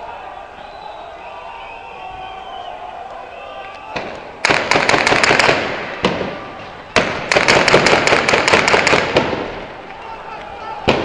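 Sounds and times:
automatic gunfire bursts: 4.4s - 5.8s, 7.0s - 9.5s.

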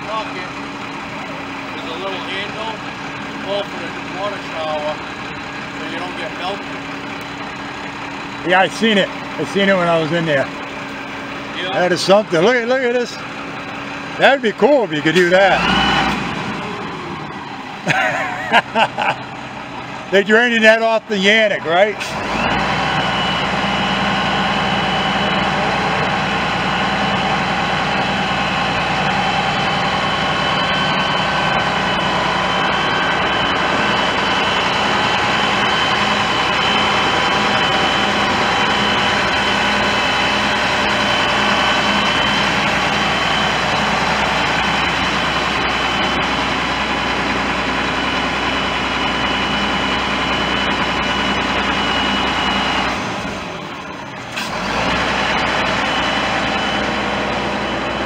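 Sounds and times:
diesel engine running: 0.0s - 58.0s
high-pitched whine: 22.2s - 54.1s.

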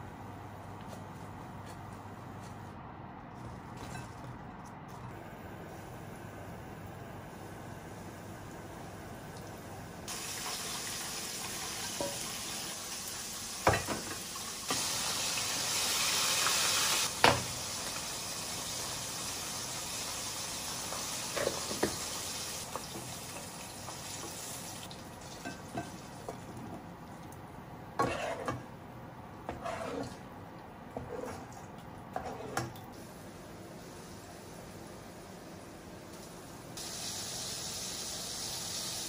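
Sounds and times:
chicken deep-frying sizzle: 10.1s - 26.2s, 36.1s - 39.0s.

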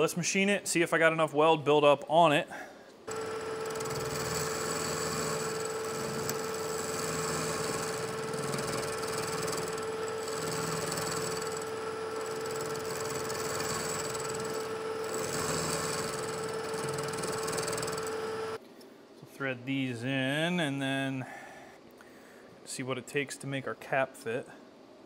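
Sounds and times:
end mill cutting metal: 3.1s - 18.6s
milling machine whine: 3.1s - 18.6s.

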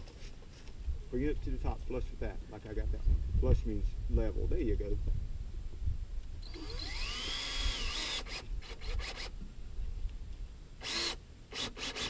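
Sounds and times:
cordless drill driving screw: 6.4s - 9.3s, 10.8s - 12.0s.

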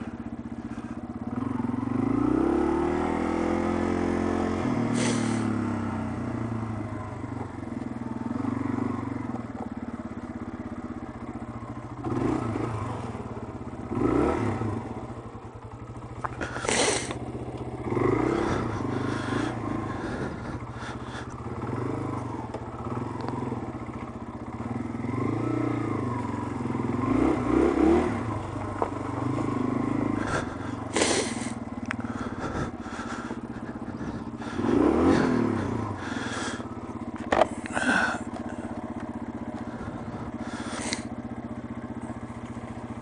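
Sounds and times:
motorcycle engine at low revs: 0.0s - 43.0s.

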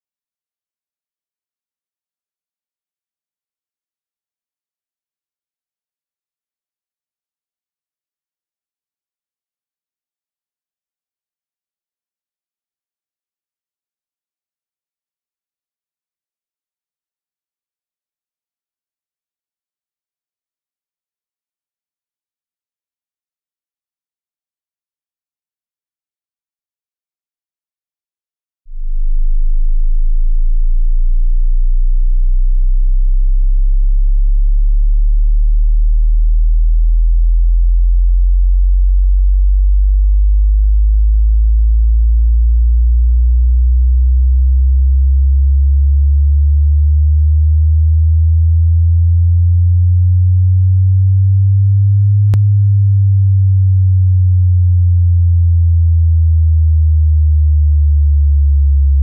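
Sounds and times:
deep bass sine tones: 28.7s - 59.0s.

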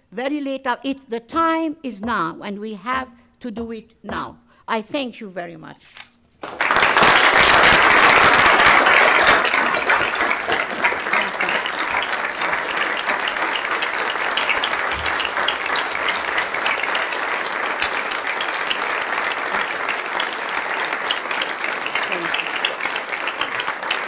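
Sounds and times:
audience applauding: 6.4s - 24.0s.

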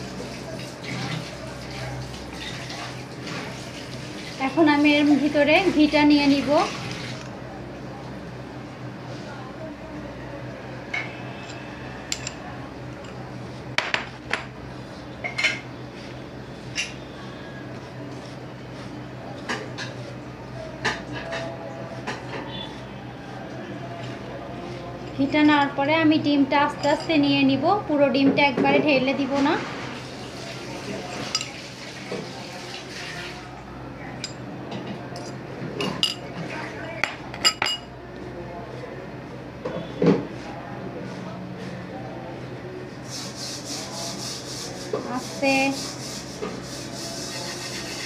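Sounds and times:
glass and ceramic bowls clinking: 35.2s - 36.3s, 37.0s - 37.9s.

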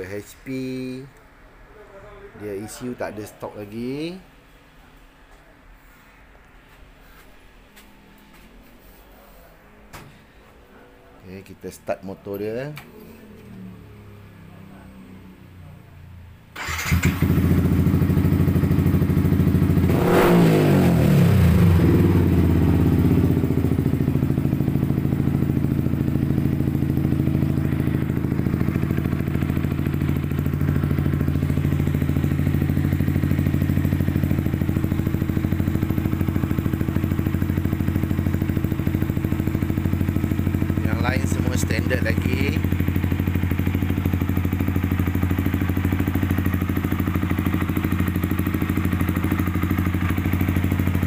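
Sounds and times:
motorcycle engine revving and idling: 16.6s - 51.0s.

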